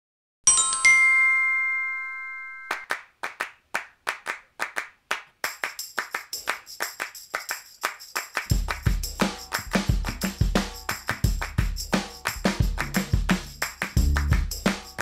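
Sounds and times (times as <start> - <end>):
bright chime chord: 0.5 - 2.8
short percussive hits: 8.2 - 15.0
heavy bass beat: 8.5 - 15.0.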